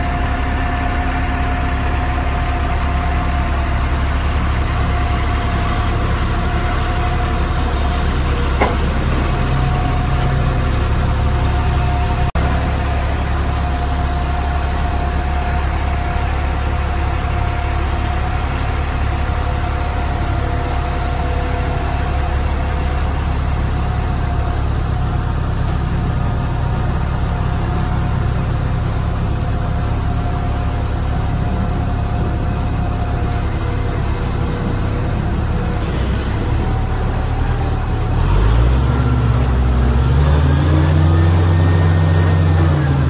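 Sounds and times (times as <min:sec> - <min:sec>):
diesel engine running: 0:00.0 - 0:43.0
steady whine: 0:00.0 - 0:43.0.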